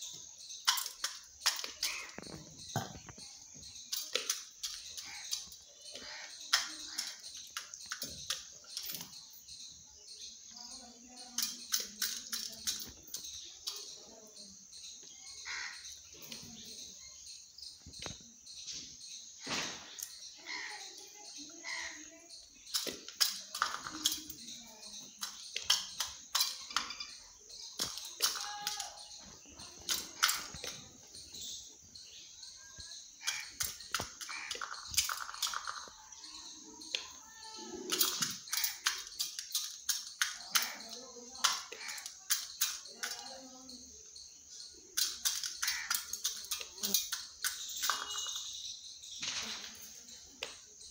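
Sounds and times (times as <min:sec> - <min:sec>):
bird chirps: 0:00.0 - 0:50.9
beak pecking in steel bowl: 0:00.6 - 0:03.2, 0:32.8 - 0:37.2, 0:37.8 - 0:43.3, 0:44.7 - 0:48.5.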